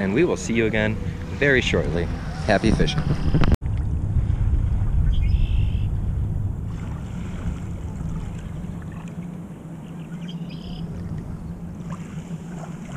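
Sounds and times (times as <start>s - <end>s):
wind rumbling on microphone: 0.0s - 10.0s
low drone: 0.0s - 12.7s.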